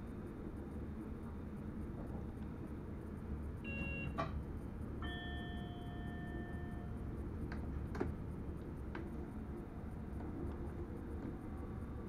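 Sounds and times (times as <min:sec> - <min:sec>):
train rumbling: 0:00.0 - 0:12.0
brief tone: 0:03.6 - 0:04.4, 0:05.0 - 0:07.0
bell-like chime: 0:05.0 - 0:07.0.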